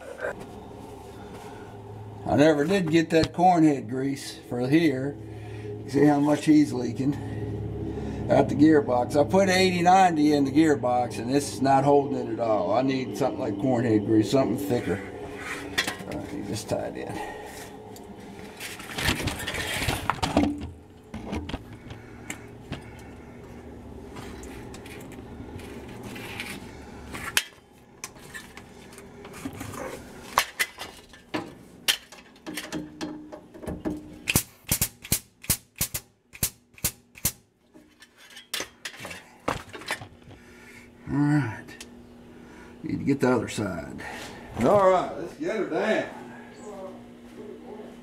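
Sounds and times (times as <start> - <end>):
rattling rubbing clatter: 18.5 - 22.0.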